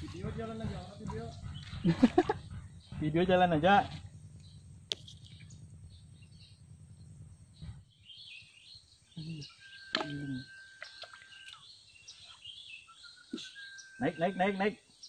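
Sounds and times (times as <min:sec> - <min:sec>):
low steady rumble: 0:00.0 - 0:12.0
small birds chirping: 0:00.0 - 0:15.0.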